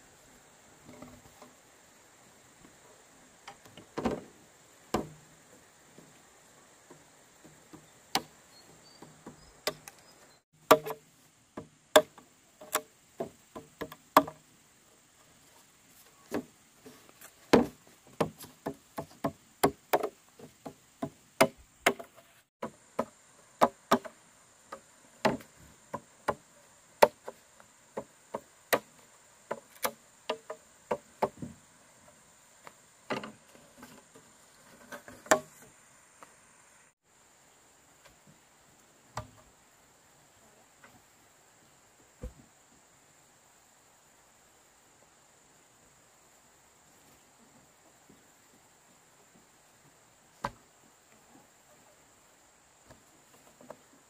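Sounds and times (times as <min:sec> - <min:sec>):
sharp knocks: 0:10.6 - 0:11.0.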